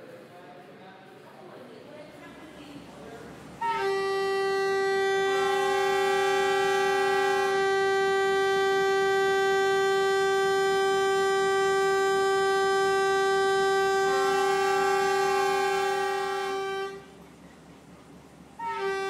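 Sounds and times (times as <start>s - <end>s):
train horn blast: 3.6s - 17.2s, 18.6s - 19.0s.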